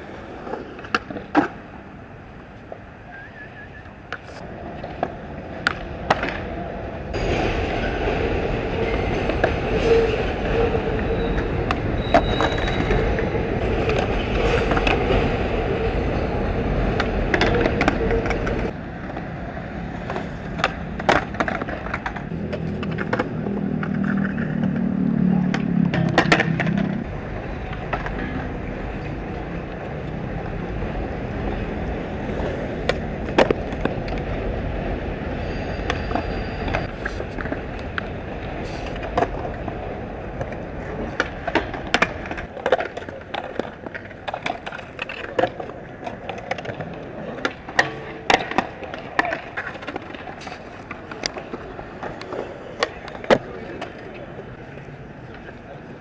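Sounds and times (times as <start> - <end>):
skateboard wheels rolling on concrete: 0.0 - 56.0
skateboards popping and landing: 0.0 - 56.0.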